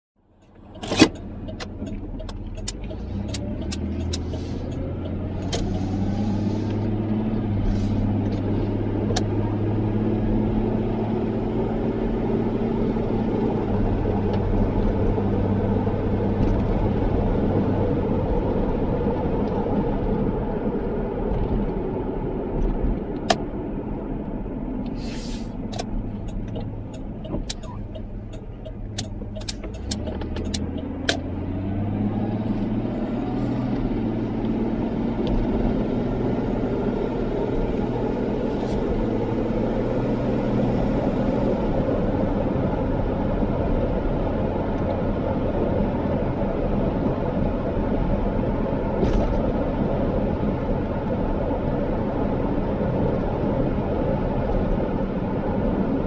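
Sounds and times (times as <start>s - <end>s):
car engine and road noise: 0.2s - 56.0s
sharp clicks and knocks: 25.7s - 31.3s.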